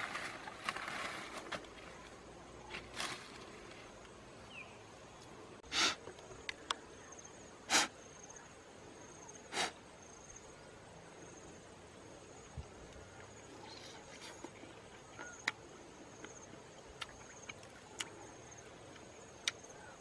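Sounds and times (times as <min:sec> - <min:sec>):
short hissing bursts: 0:05.6 - 0:06.0, 0:07.6 - 0:08.0, 0:09.5 - 0:09.8
faint high insect trill: 0:06.0 - 0:20.0.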